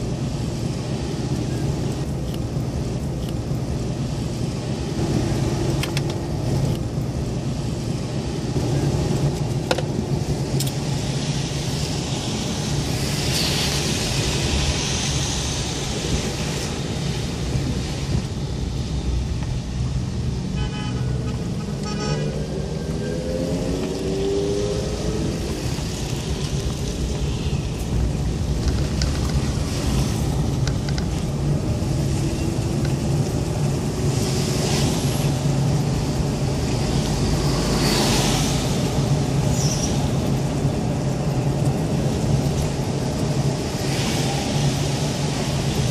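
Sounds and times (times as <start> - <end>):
car engine and tyre noise: 0.0 - 45.9
vehicle horn toots: 20.6 - 22.3.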